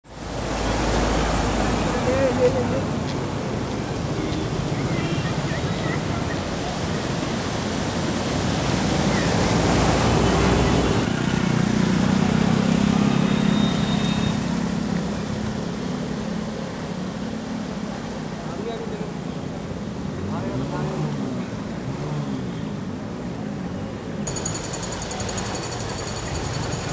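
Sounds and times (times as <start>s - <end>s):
floodwater rushing and splashing: 0.1s - 13.4s
water washing around wheels: 0.1s - 18.4s, 24.3s - 26.9s.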